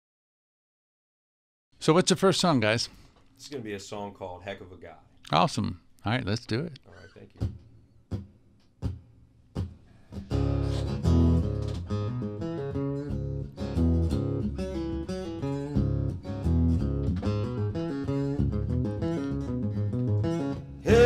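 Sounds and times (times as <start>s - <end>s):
acoustic guitar picking: 9.6s - 21.0s.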